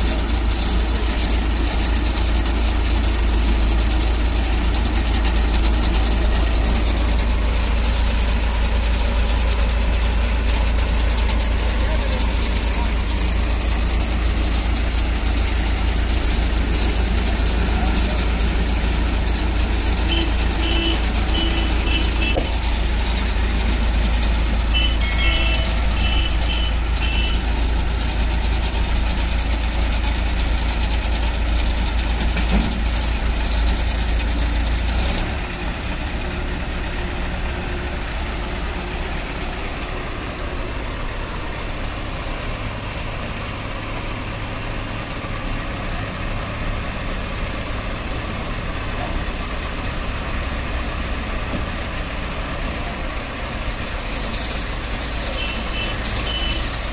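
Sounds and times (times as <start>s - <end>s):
heavy diesel engines running: 0.0s - 56.9s.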